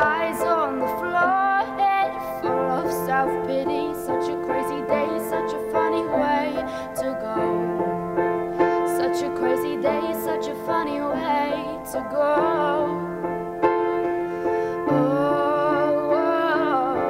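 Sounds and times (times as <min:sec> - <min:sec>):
piano playing held chords: 0:00.0 - 0:17.0
woman singing: 0:00.0 - 0:17.0.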